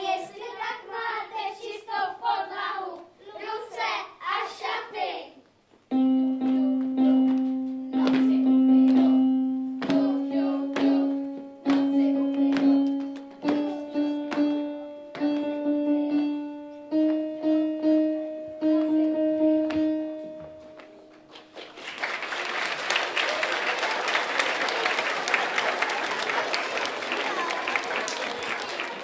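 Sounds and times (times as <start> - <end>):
electronic keyboard melody: 5.9 - 21.4
audience applause: 21.3 - 29.0.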